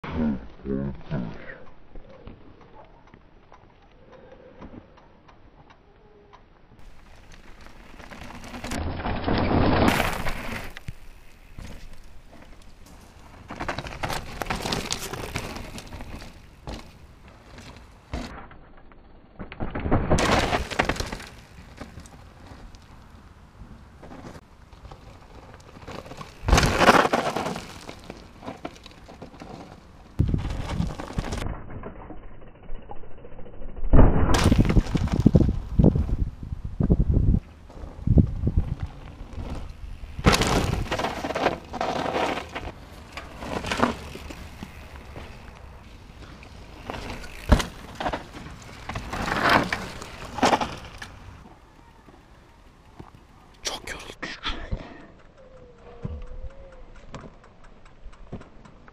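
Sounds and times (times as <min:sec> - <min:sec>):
bike tyres crunching on gravel: 0:06.8 - 0:18.4, 0:19.6 - 0:31.4, 0:34.4 - 0:53.4
bike rattling: 0:06.8 - 0:53.5, 0:55.0 - 0:58.9.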